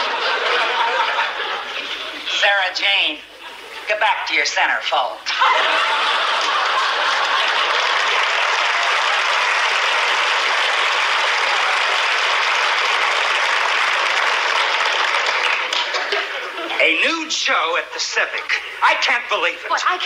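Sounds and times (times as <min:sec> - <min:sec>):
studio audience applauding: 0:05.3 - 0:16.6.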